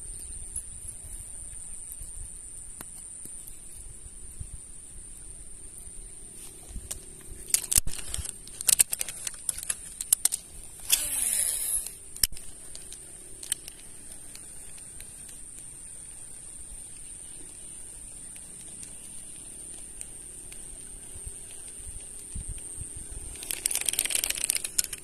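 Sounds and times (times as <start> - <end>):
fishing tackle clicks and knocks: 6.7 - 15.7, 23.4 - 25.0
fishing line whizzing off spool: 7.4 - 13.9, 23.0 - 25.0
sharp reel click: 7.4 - 15.2, 23.3 - 25.0.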